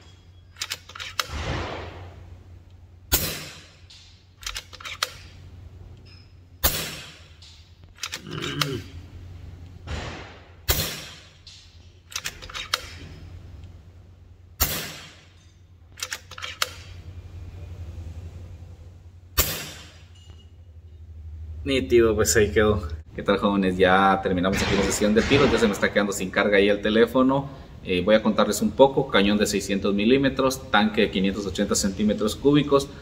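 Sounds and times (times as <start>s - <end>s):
rifle lever action clicks: 0.6s - 1.4s, 4.4s - 5.3s, 7.8s - 8.2s, 12.1s - 13.0s, 16.0s - 16.9s
air rifle shots: 0.9s - 2.2s, 3.1s - 3.9s, 6.6s - 7.4s, 9.9s - 11.4s, 14.6s - 15.3s, 19.4s - 20.0s, 24.5s - 26.0s.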